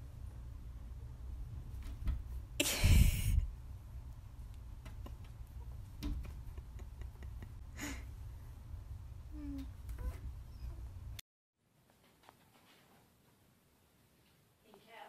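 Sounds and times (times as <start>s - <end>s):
cats scuffling and thumping: 1.4s - 2.6s, 4.2s - 7.6s.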